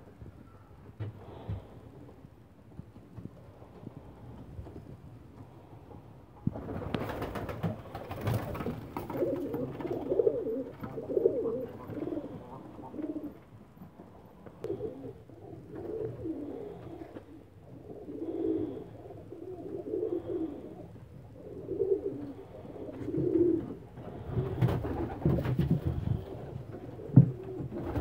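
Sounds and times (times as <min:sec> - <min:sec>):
pigeons cooing: 0:06.8 - 0:28.0
knocks and rustles: 0:23.6 - 0:28.0.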